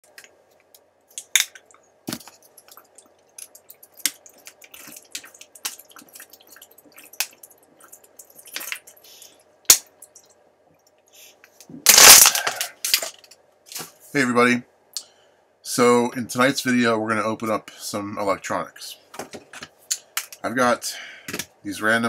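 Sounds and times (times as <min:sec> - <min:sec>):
plastic bottle crackling: 0:11.9 - 0:13.3.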